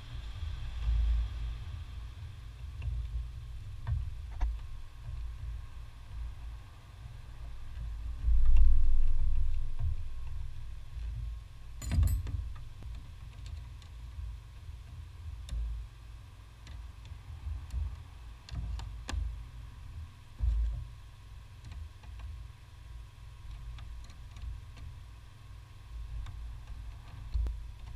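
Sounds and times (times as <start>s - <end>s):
dull low thump: 7.7s - 12.6s.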